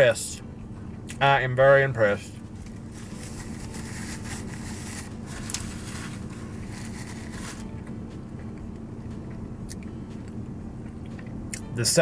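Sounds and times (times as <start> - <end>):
car interior hum: 0.0 - 12.0
paper napkin rustling: 2.6 - 7.7.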